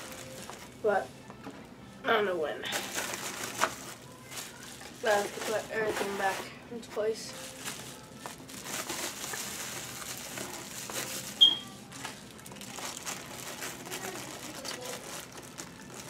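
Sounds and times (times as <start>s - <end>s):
bubble wrap crinkling: 0.0s - 1.4s, 2.7s - 16.0s
high squeak: 11.4s - 11.7s.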